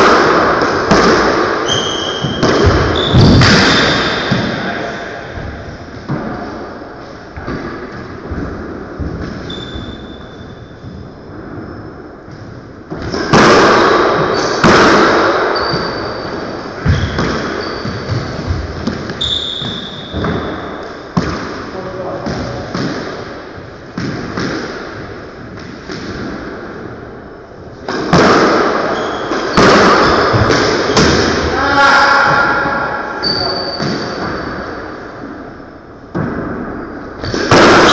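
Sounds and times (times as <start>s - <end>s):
squash ball cracking off walls: 0.0s - 4.6s, 12.9s - 20.6s, 27.8s - 31.6s, 36.1s - 37.9s
sneaker squeaks on hardwood: 1.6s - 4.4s, 9.3s - 11.9s, 14.2s - 14.6s, 15.5s - 20.9s, 28.9s - 31.1s, 33.2s - 34.6s.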